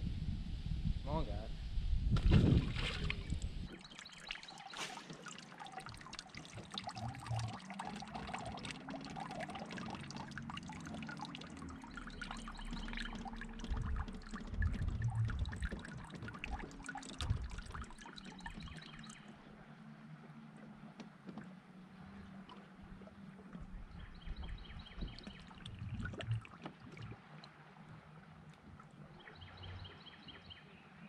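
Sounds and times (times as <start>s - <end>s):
water lapping against hull: 2.1s - 31.0s
soft low thumps: 11.8s - 19.4s, 22.8s - 27.2s.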